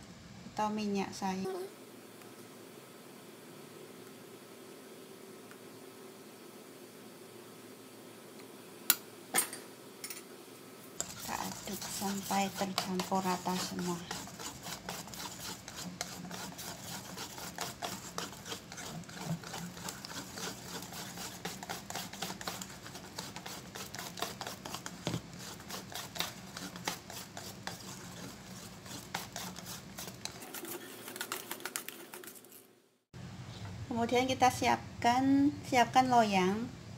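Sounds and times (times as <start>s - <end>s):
whisk beating batter in metal bowl: 11.0s - 32.6s.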